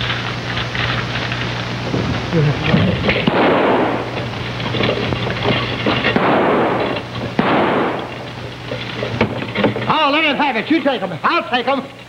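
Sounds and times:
low electrical hum: 0:00.0 - 0:12.0
steady rushing rumble: 0:01.6 - 0:09.5
rifle gunshots: 0:03.2 - 0:04.4, 0:06.1 - 0:08.5.

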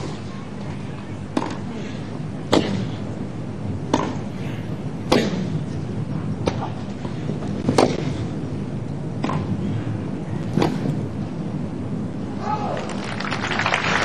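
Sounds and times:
tennis ball hit by rackets: 0:01.3 - 0:01.6, 0:03.9 - 0:04.3, 0:05.1 - 0:05.6, 0:06.4 - 0:06.8, 0:07.6 - 0:08.2, 0:09.2 - 0:09.5, 0:10.6 - 0:10.9.

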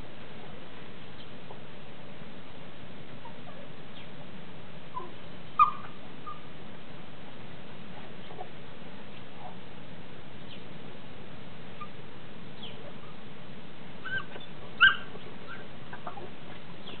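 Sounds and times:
background hiss: 0:00.0 - 0:17.0
dog yelping: 0:04.9 - 0:06.5, 0:14.0 - 0:16.3
dogs whimpering: 0:05.0 - 0:06.5, 0:14.0 - 0:16.4.

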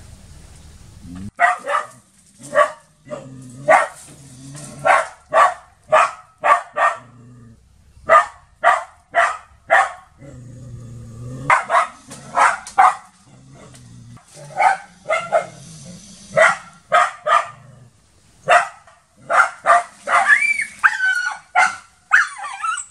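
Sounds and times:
dog barking: 0:01.3 - 0:04.1, 0:04.8 - 0:07.1, 0:08.1 - 0:10.2, 0:11.5 - 0:13.2, 0:14.5 - 0:15.6, 0:16.3 - 0:17.7, 0:18.4 - 0:22.9
dog whining: 0:22.1 - 0:22.9.

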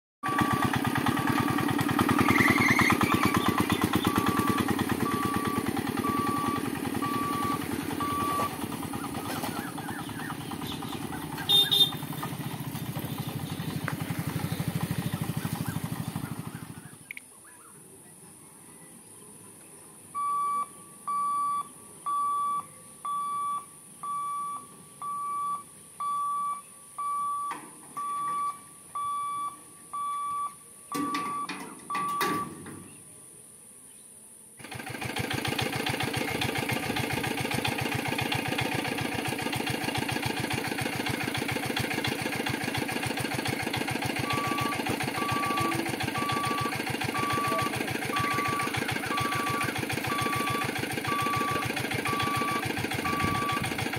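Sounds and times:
level crossing warning beeps: 0:00.2 - 0:01.8, 0:03.2 - 0:09.2, 0:20.2 - 0:32.7, 0:44.1 - 0:53.9
fast mechanical rattle: 0:00.3 - 0:16.6, 0:34.6 - 0:53.9.

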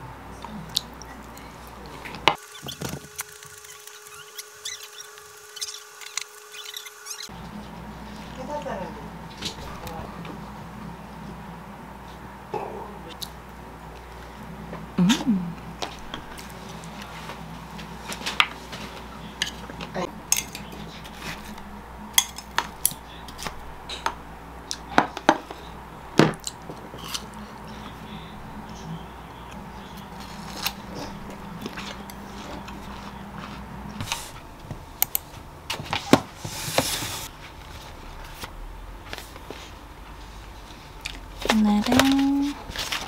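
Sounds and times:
chopsticks clinking on containers: 0:20.3 - 0:20.8.

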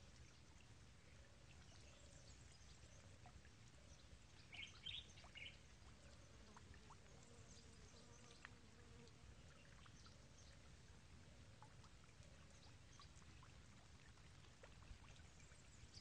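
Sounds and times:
light ticks: 0:08.3 - 0:08.6.

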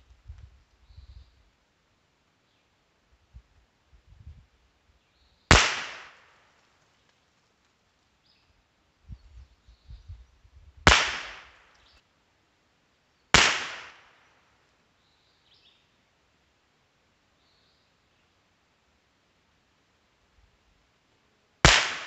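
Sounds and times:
rifle shots: 0:05.5 - 0:06.2, 0:10.9 - 0:11.6, 0:13.4 - 0:14.0, 0:21.6 - 0:22.0.

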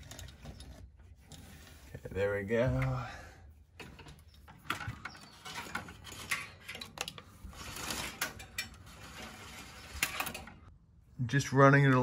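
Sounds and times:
hands handling electrical wiring: 0:00.0 - 0:10.7.

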